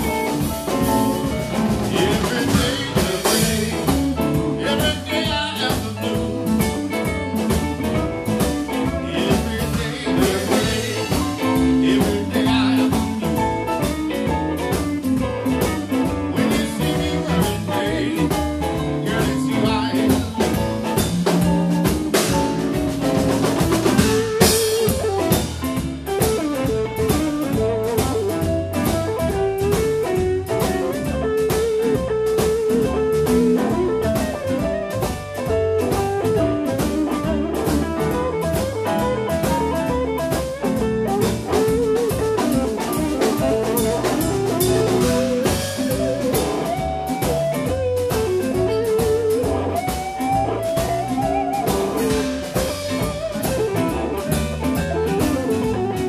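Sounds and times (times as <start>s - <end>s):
bass guitar: 0.0s - 56.0s
drum kit: 0.0s - 56.0s
electric guitar solo: 23.9s - 56.0s.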